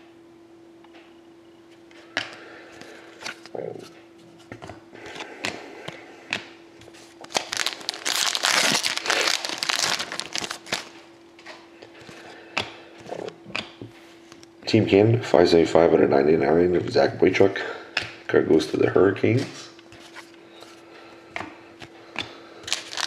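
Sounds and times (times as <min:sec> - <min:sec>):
faint steady hum: 0:00.0 - 0:23.0
wrapper crinkling and tearing: 0:07.1 - 0:11.0, 0:22.7 - 0:23.0.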